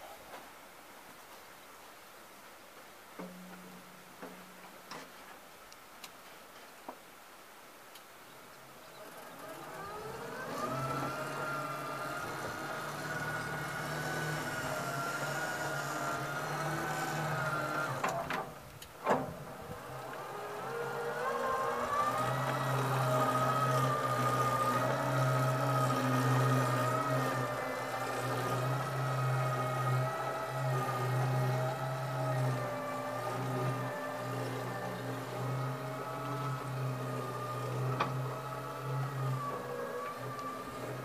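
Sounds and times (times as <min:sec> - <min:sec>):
electric drive whining: 0:08.9 - 0:41.0.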